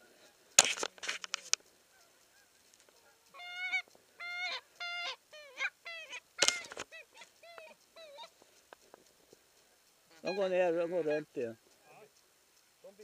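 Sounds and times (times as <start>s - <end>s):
sharp clicks: 0.5s - 4.0s, 6.2s - 10.0s
geese honking in flight: 1.9s - 8.3s, 10.0s - 11.4s.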